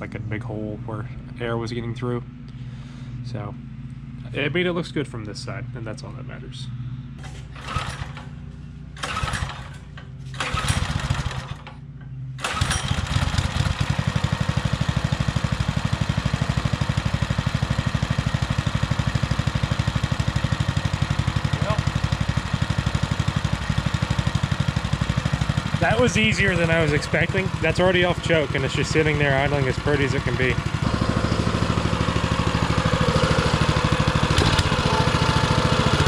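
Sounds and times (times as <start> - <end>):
small engine idling: 6.8 - 36.0
small engine cranking: 7.5 - 8.3, 9.0 - 11.8, 12.4 - 14.1, 28.6 - 36.0.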